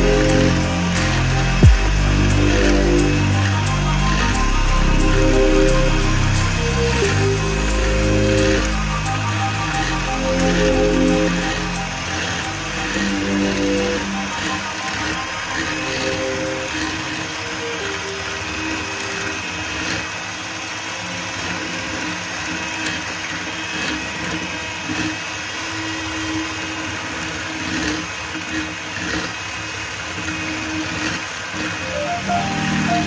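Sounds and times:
rising musical notes: 0:00.0 - 0:19.7, 0:31.8 - 0:33.0.

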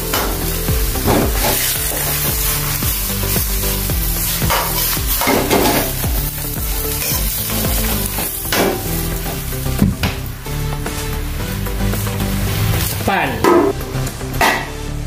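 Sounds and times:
greens sizzling in a wok: 0:00.0 - 0:14.8
metal spatula scraping wok: 0:01.0 - 0:06.0.

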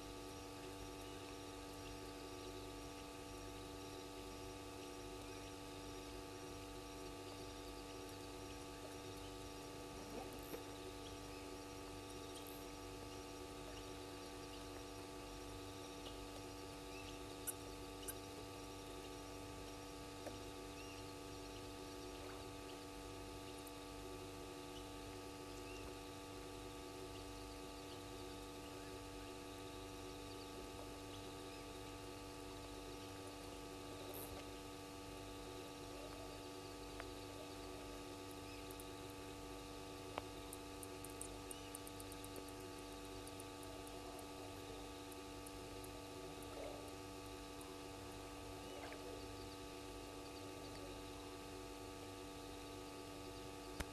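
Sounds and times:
constant hum of steady tones: 0:00.0 - 0:53.9
faint night background noise: 0:00.0 - 0:53.9
faint chirps: 0:08.7 - 0:14.8, 0:15.4 - 0:19.3, 0:20.1 - 0:23.7, 0:35.5 - 0:39.2, 0:40.5 - 0:47.8, 0:48.5 - 0:51.3
faint rapid high ticks: 0:17.3 - 0:18.4, 0:38.3 - 0:39.2, 0:40.1 - 0:47.0.

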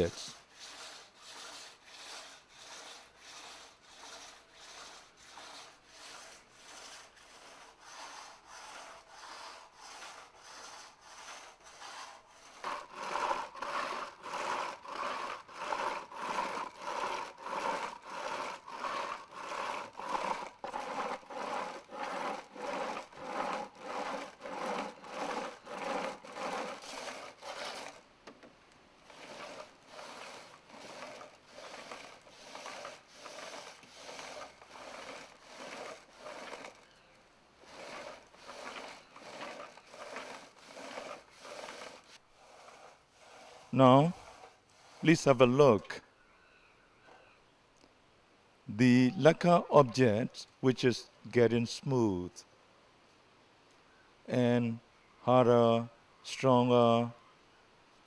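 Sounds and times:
stone scraping spinning bowl: 0:00.3 - 0:28.0, 0:29.1 - 0:36.8, 0:37.6 - 0:45.2.

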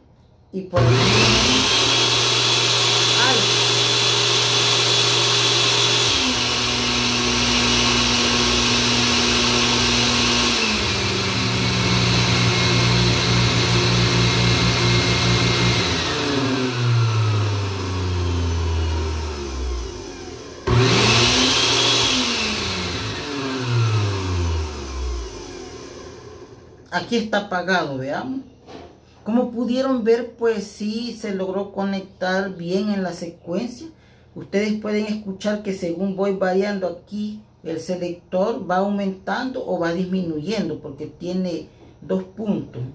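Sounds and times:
blender motor changing speed: 0:00.8 - 0:26.8.

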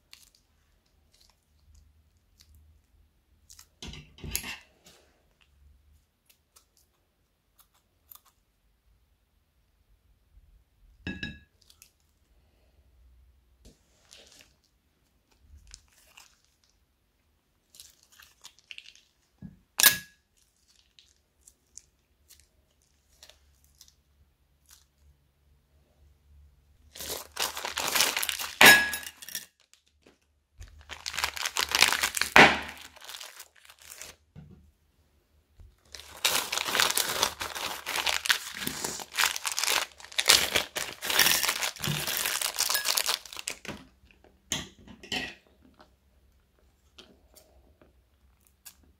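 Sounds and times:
plastic bags crinkling: 0:15.3 - 0:16.8, 0:26.8 - 0:34.2, 0:35.7 - 0:44.2.

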